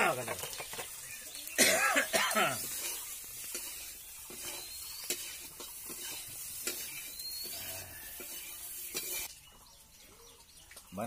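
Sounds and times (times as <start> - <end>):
food sizzling: 0.0 - 11.0
metal spatula scraping iron pan: 2.3 - 9.4.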